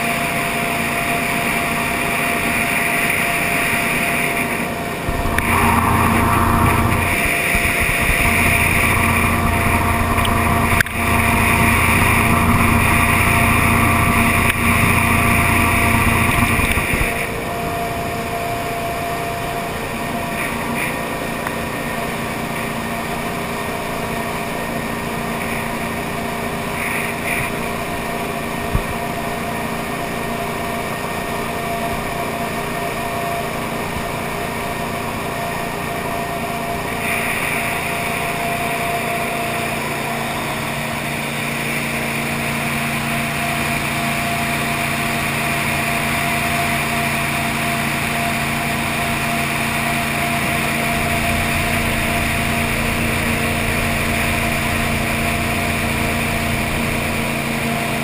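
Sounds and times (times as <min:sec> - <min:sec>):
jet boat engine: 0:00.0 - 0:58.0
water rushing: 0:05.0 - 0:17.4.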